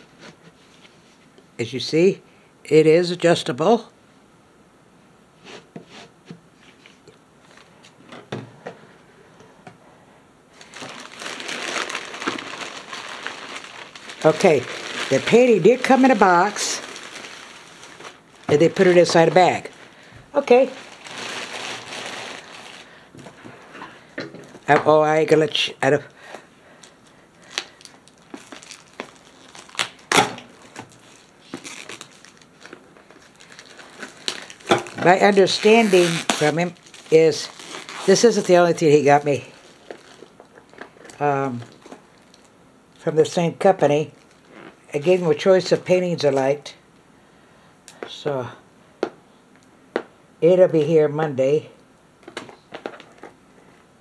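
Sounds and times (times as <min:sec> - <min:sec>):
plastic mailer bag crinkling: 0:10.5 - 0:23.4, 0:26.8 - 0:42.5, 0:44.1 - 0:44.8.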